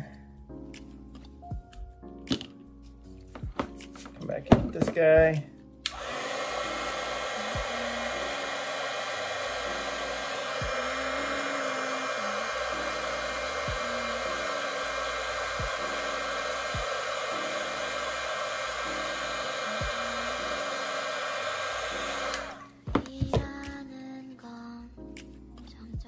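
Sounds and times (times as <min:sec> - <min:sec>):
heat gun blowing: 0:05.9 - 0:22.7.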